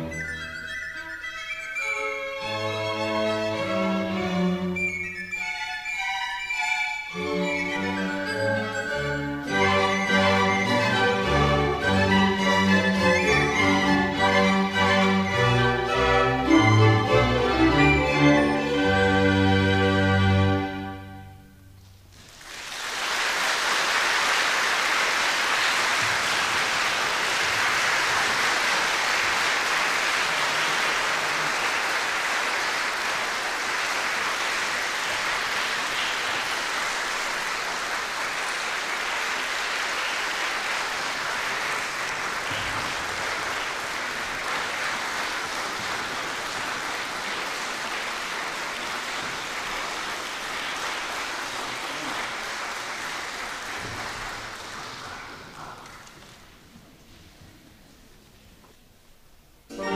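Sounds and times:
audience applauding: 22.1s - 57.2s.

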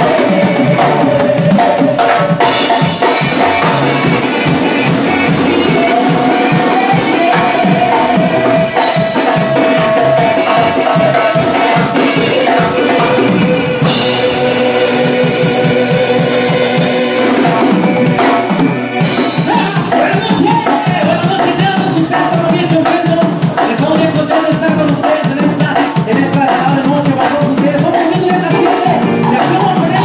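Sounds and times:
drum kit driving beat: 0.0s - 30.0s
held instrument notes: 28.5s - 30.0s.

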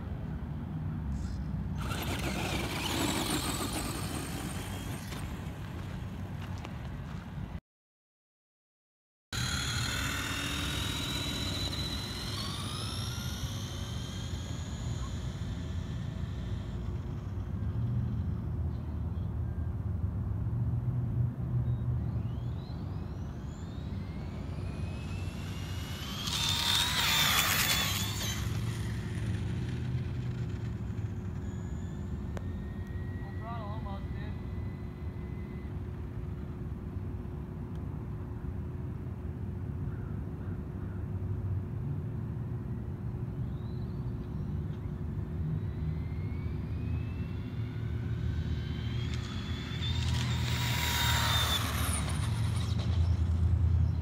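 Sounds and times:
rc truck motors whining: 1.7s - 6.5s, 9.4s - 18.9s, 22.1s - 36.6s, 43.5s - 54.0s.

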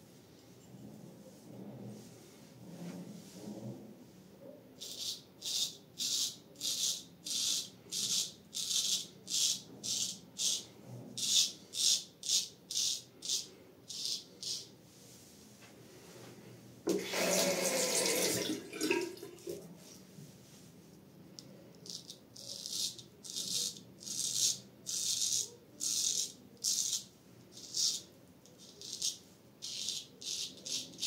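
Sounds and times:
razor scraping beard stubble: 4.8s - 14.7s, 21.8s - 31.0s
running water: 16.9s - 19.6s.

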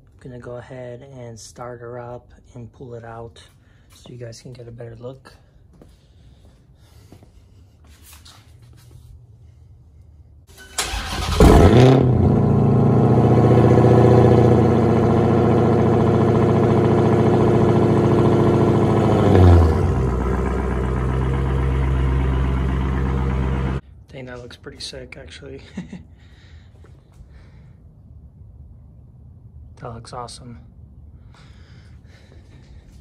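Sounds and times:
engine starter cranking: 10.5s - 12.2s
car engine idling: 10.8s - 23.8s.

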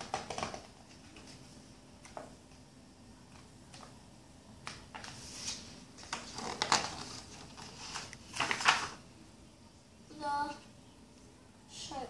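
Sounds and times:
paper pages rustling: 4.6s - 9.0s.

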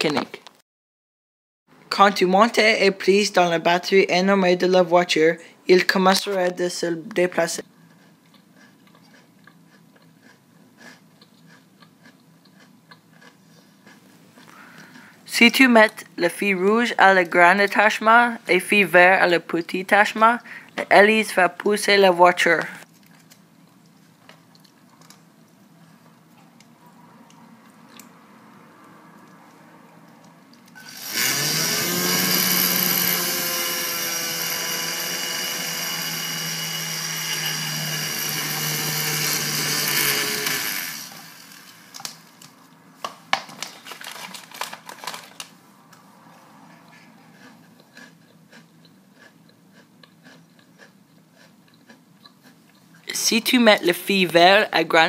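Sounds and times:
small electric motor whining: 30.8s - 41.9s.

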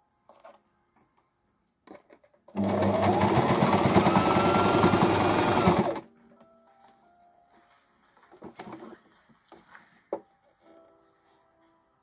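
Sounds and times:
sewing machine running: 2.5s - 6.0s.

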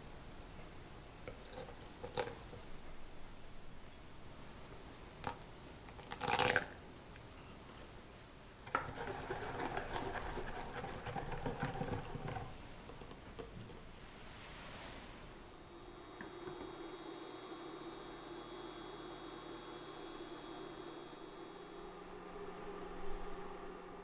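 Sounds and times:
water pouring into glass bowl: 1.3s - 2.5s, 5.2s - 6.8s
whisk beating against glass bowl: 8.7s - 13.5s.

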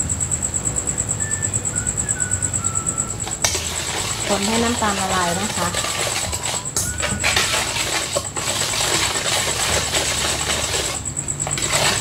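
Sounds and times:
metal spoon scraping metal bowl: 3.2s - 12.0s.

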